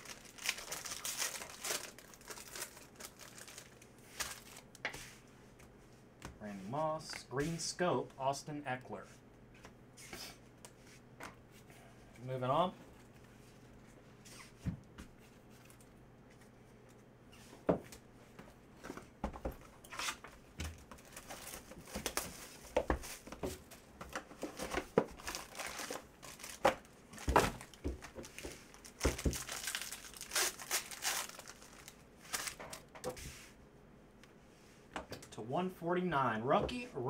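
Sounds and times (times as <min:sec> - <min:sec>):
foil packs crinkling and tearing: 0:00.0 - 0:04.8, 0:21.0 - 0:22.6, 0:24.4 - 0:32.9.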